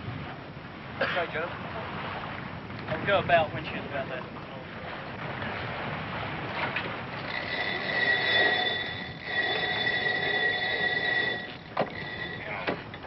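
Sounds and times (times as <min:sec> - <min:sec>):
rigging squealing: 0:07.2 - 0:13.0.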